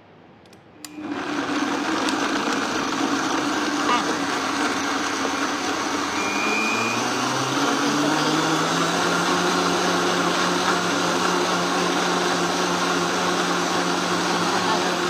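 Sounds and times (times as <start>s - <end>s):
blender motor running: 0.9s - 15.0s.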